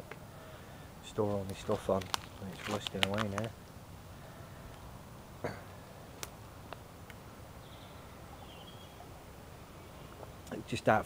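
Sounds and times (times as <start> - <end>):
faint high bird chirps: 7.6 - 10.2.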